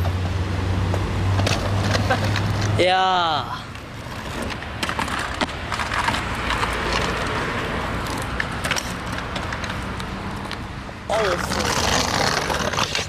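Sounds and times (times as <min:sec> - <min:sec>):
scooter wheels rolling on asphalt: 0:00.0 - 0:13.0.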